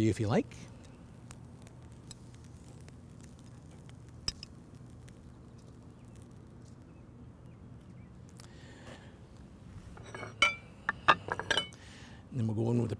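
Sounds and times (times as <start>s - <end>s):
steady low hum: 0.0s - 12.5s
tongs handling food on grill: 0.2s - 9.1s.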